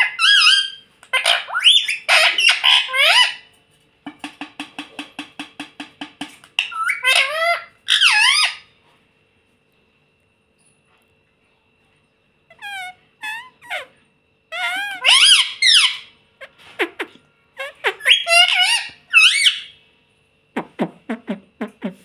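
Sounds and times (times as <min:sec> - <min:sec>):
parakeet calling: 0:00.0 - 0:03.5, 0:06.6 - 0:08.7, 0:12.5 - 0:19.8.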